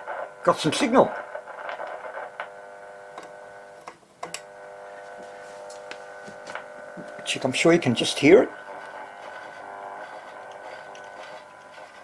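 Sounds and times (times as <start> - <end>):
radio loudspeaker buzzing hum: 0.0 - 12.0
clicks and crackles: 1.2 - 2.6.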